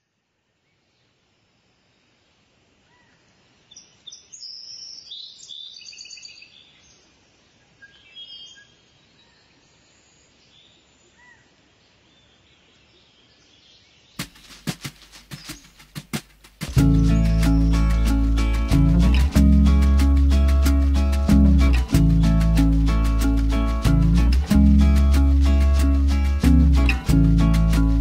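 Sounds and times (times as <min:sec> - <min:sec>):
faint steady hiss: 0:00.0 - 0:28.0
small birds chirping: 0:02.9 - 0:28.0
sharp taps: 0:14.2 - 0:16.8.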